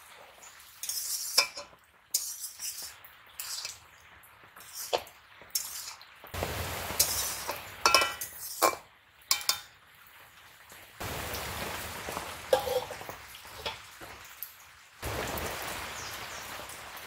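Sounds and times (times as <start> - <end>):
frying hiss: 0.0 - 17.0
metal spatula scraping a pan: 0.7 - 3.9, 4.6 - 6.1, 7.0 - 9.7, 12.5 - 13.0.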